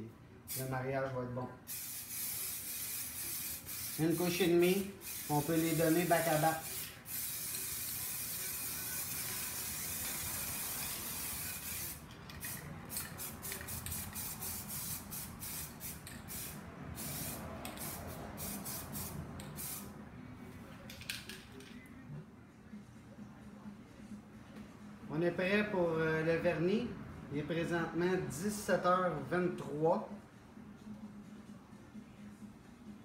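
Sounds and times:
aerosol spray can hissing: 1.7 - 19.9.

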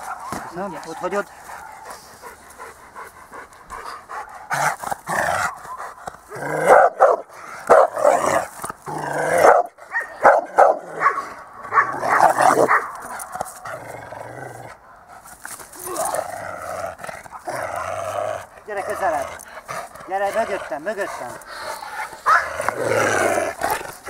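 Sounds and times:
dog barking: 1.6 - 1.9, 6.6 - 8.2, 9.4 - 13.0, 22.2 - 22.5.

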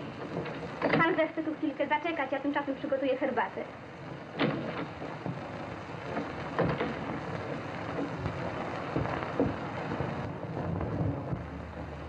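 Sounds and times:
film soundtrack hiss and crackle: 0.0 - 12.0
faint knocks and pops: 4.1 - 12.0.

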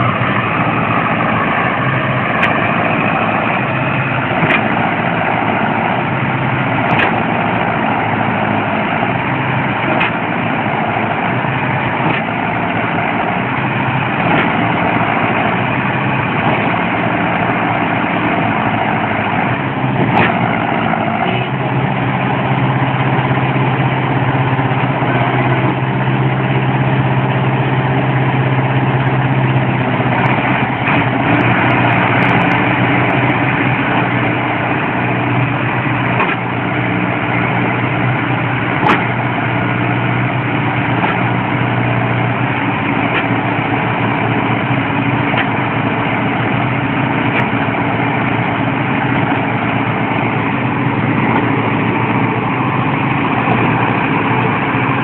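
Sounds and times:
tractor diesel engines running hard: 0.0 - 55.0.

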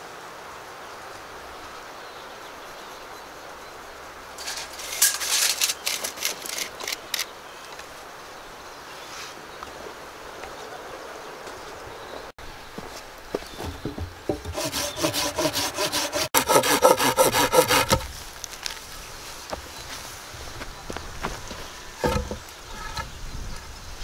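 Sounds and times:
steady outdoor hiss: 0.0 - 24.0
tape measure clicking and rattling: 4.4 - 7.3.

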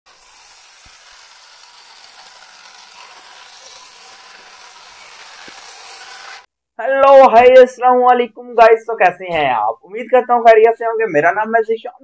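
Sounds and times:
toy car motor whirring: 0.1 - 6.5.

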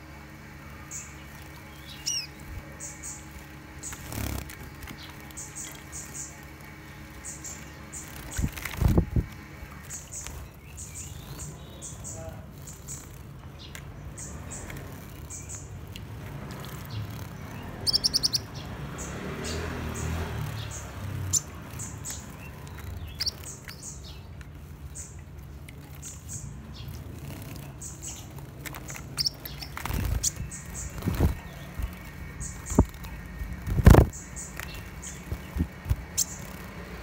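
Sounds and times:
steady low rumble: 0.6 - 18.8
bird chirping: 0.8 - 37.0.

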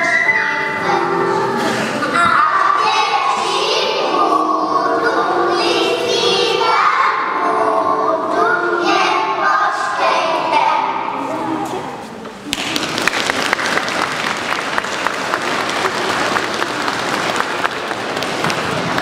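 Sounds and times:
children singing together: 0.0 - 12.0.

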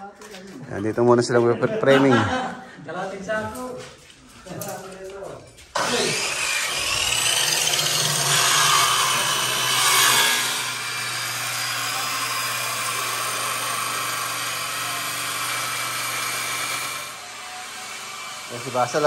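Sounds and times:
circular saw cutting wood: 5.7 - 19.0.

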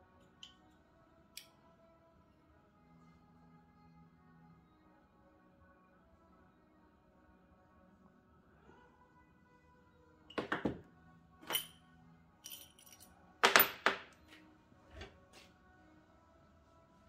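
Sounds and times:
quiet background music: 0.0 - 17.0
metal parts clinking: 11.4 - 11.8, 12.4 - 14.0.

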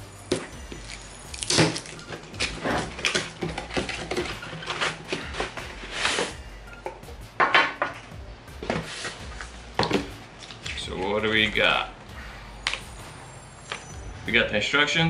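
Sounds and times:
cardboard scraping and rustling: 1.7 - 6.4, 8.6 - 10.1.

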